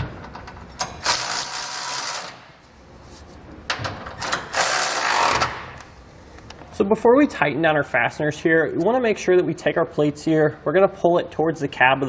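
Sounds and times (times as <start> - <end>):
cordless ratchet running: 0.8 - 2.4.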